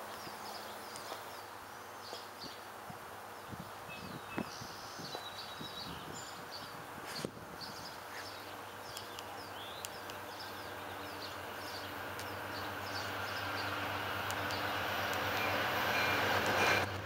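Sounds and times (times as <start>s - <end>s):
small birds chirping: 0.0s - 15.6s
diesel train hum: 6.3s - 17.0s.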